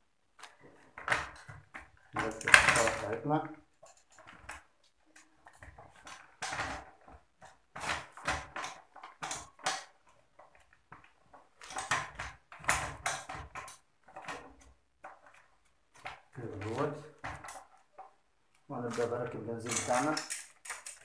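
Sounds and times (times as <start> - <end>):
bicycle chain rattling: 18.8 - 21.0
metallic clinks and knocks: 19.6 - 21.0.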